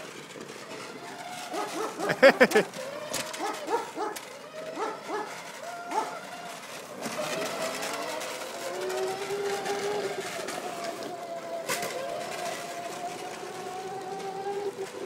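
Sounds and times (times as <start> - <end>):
electric motor whining: 0.0 - 15.0
sharp rising yelps: 1.5 - 6.3.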